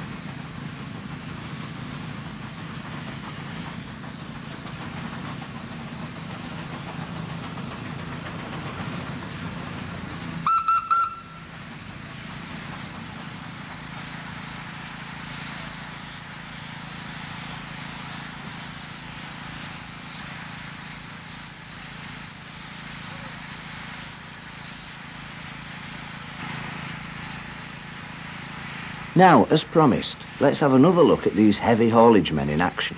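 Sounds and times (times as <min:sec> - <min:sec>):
engine hum and hiss: 0:00.0 - 0:32.9
steam whistle toots: 0:10.4 - 0:11.6.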